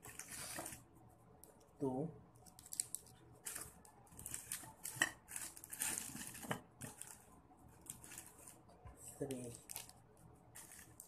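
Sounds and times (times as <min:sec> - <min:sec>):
foil wrappers crinkling: 0:02.5 - 0:08.6, 0:09.2 - 0:11.0.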